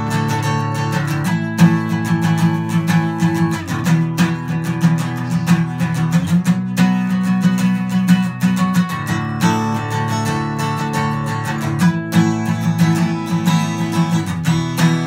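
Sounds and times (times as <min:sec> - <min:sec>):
acoustic guitar strumming: 0:00.0 - 0:15.0.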